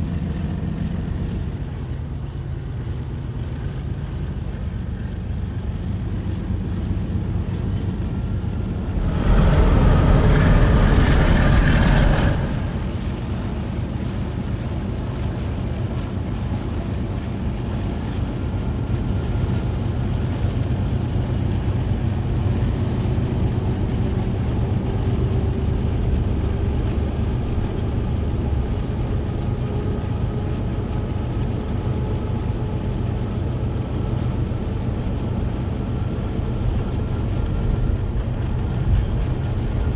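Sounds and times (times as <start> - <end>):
locomotive engine rumble: 0.0 - 39.9
road and wind noise: 0.0 - 39.9
loud rush of noise: 8.0 - 13.8, 23.4 - 33.2.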